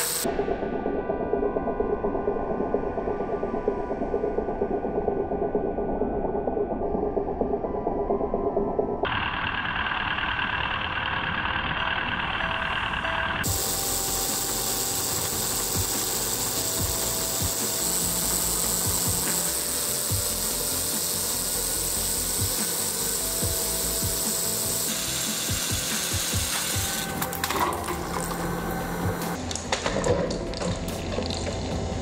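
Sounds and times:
toy car motor whirring on treadmill: 0:00.0 - 0:00.3, 0:09.1 - 0:29.4
ratcheting clicks: 0:13.4 - 0:29.4.

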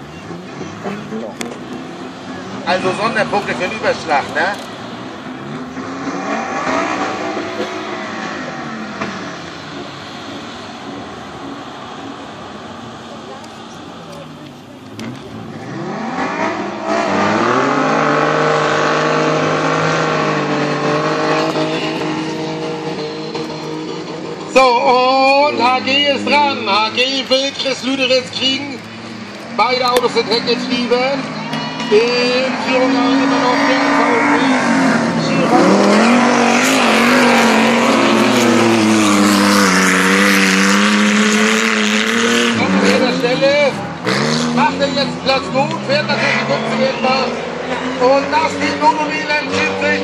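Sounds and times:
car engine revving: 0:00.0 - 0:50.0
tyre and dirt noise: 0:00.0 - 0:50.0.

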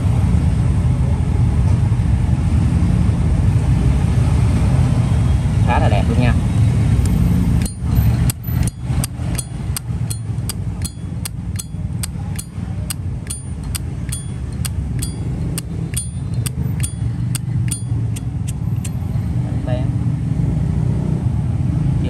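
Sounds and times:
low rumble of traffic: 0:00.0 - 0:22.0
lighter lid metallic clicks: 0:13.3 - 0:17.0.

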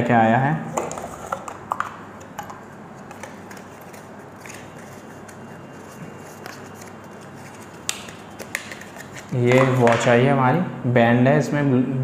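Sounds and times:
packaging clicks and rustles: 0:03.0 - 0:10.0.

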